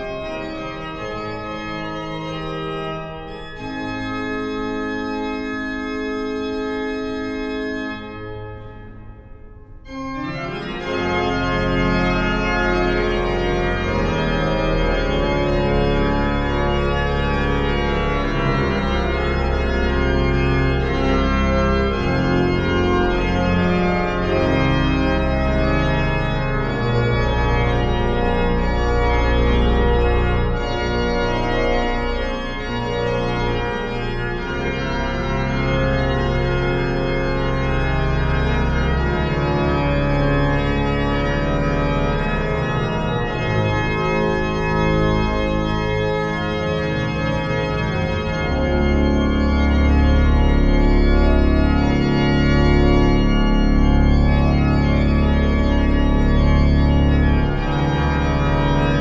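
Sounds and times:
pipe organ playing chords: 0:00.0 - 0:59.0.

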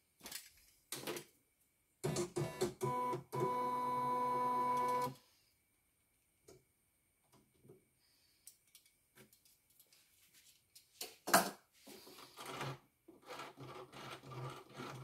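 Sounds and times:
embroidery machine motor whine: 0:02.9 - 0:05.1.

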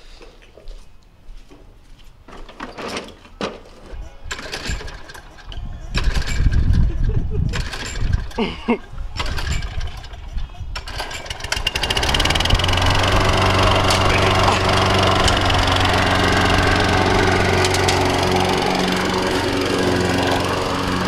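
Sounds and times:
lawn mower engine starting and running: 0:04.2 - 0:21.0.

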